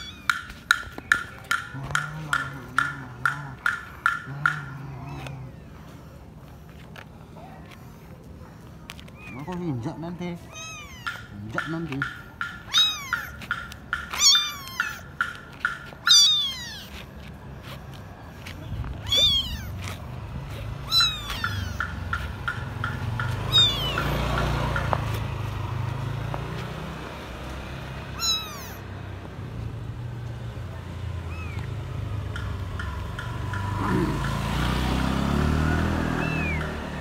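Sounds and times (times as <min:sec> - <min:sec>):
kitten mewing: 0:00.0 - 0:00.7, 0:01.6 - 0:05.7, 0:09.0 - 0:17.1, 0:18.5 - 0:24.6, 0:28.1 - 0:28.9, 0:31.2 - 0:32.1, 0:35.8 - 0:37.0.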